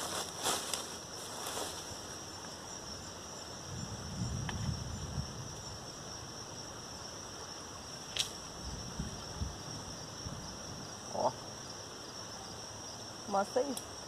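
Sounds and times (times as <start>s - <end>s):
high-pitched insect chorus: 0.0s - 14.0s.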